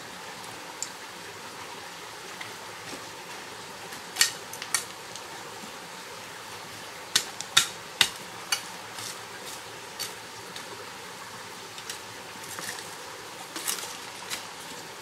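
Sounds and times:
stream rushing: 0.0 - 15.0
machete chopping stony ground: 7.2 - 8.6.

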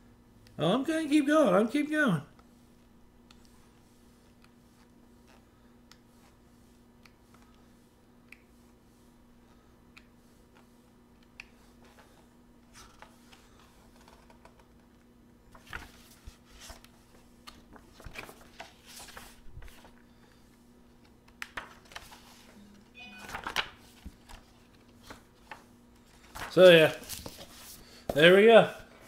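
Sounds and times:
faint steady hum: 0.0 - 29.0
book pages rustling: 11.5 - 22.6, 23.2 - 28.3.

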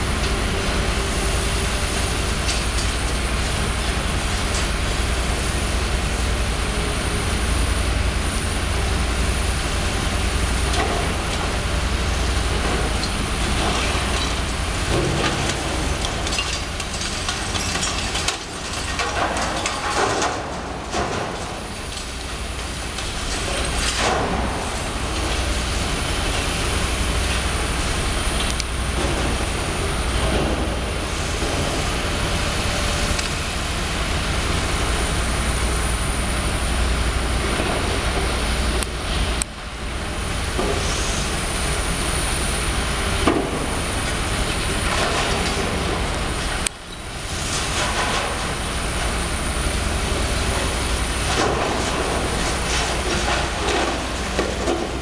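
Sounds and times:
excavator diesel engine: 0.0 - 55.0
falling masonry crunching: 10.4 - 32.8, 43.1 - 55.0.

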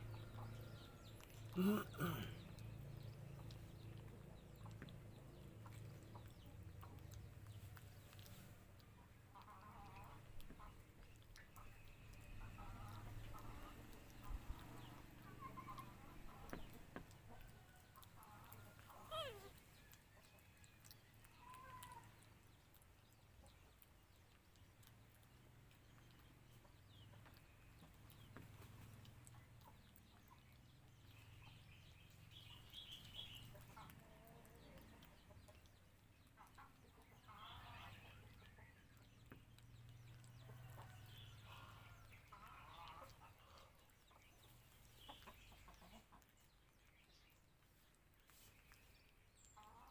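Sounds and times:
faint animal calls: 17.4 - 20.0, 20.8 - 22.8.

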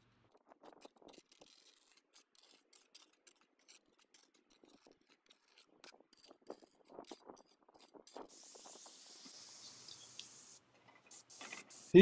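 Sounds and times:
trowel scraping compound: 0.6 - 8.6.

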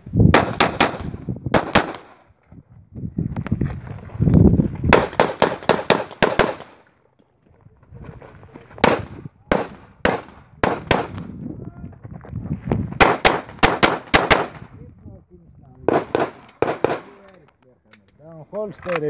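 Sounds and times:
pistol shots: 0.3 - 2.2, 4.9 - 6.8, 8.8 - 11.2, 13.0 - 14.6, 15.9 - 17.2.

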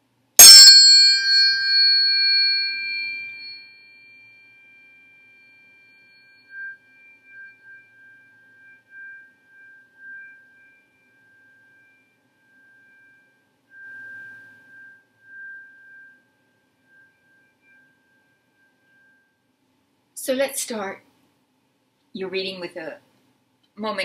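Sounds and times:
tuning fork strike click: 0.4 - 16.2
tuning forks ringing: 0.4 - 20.0.

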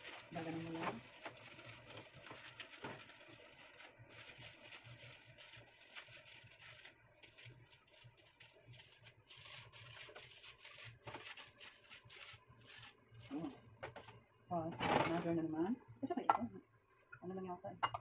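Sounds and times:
aluminium foil crinkling: 0.0 - 14.1.

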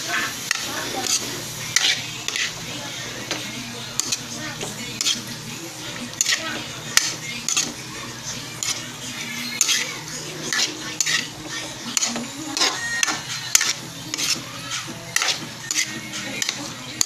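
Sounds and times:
spatula scraping a wok: 0.0 - 17.0.

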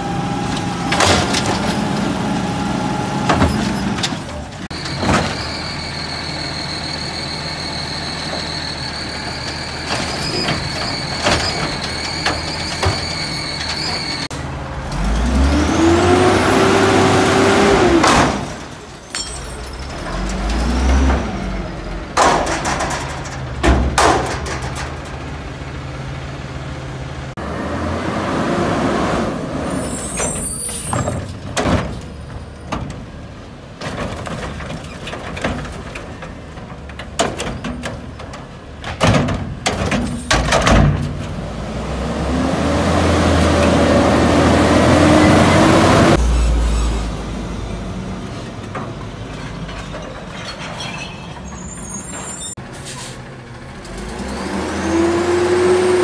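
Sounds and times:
truck engine revving: 0.0 - 18.8, 19.7 - 30.4, 41.2 - 49.4, 53.2 - 56.0
sharp knocks and bangs: 17.9 - 21.4, 22.1 - 25.5.

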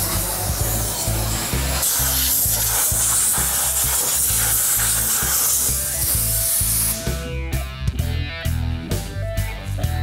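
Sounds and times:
steam cleaner spray hissing: 0.0 - 7.2
background music with beat: 0.0 - 10.0.

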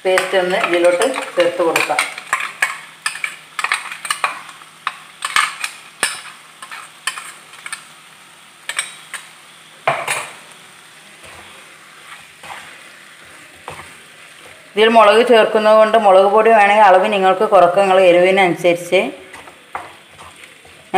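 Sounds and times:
faint sizzle: 0.0 - 20.9
wooden spatula scraping pan: 11.2 - 14.7, 19.2 - 20.9.

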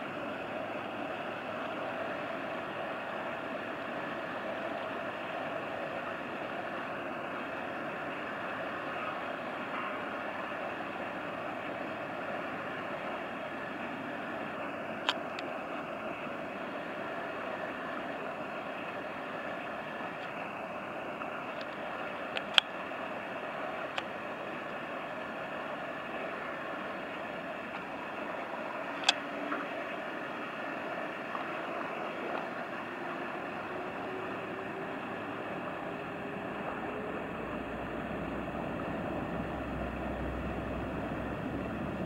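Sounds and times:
passing barge rushing: 22.9 - 42.0.

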